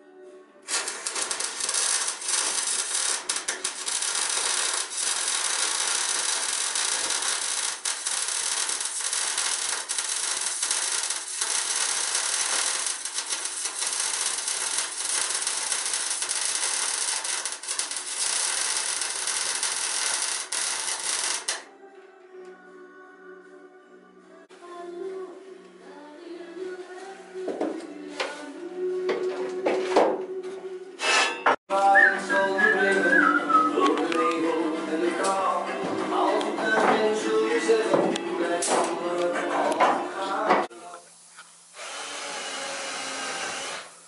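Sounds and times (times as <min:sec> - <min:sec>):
arc welding crackling hiss: 0:00.7 - 0:21.7, 0:40.8 - 0:44.0.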